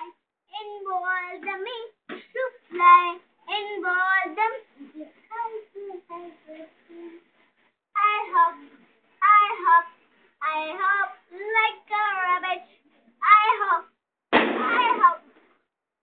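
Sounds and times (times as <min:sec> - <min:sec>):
boy chanting a poem: 0:08.0 - 0:13.9.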